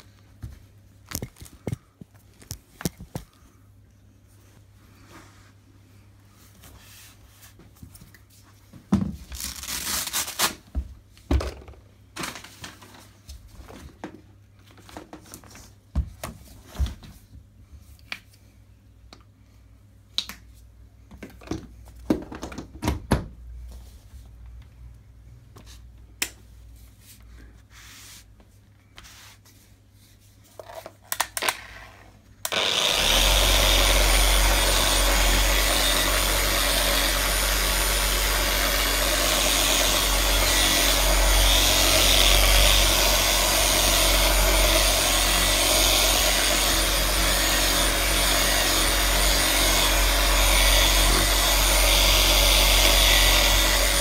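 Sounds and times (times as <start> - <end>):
electric polisher running: 32.5 - 54.0.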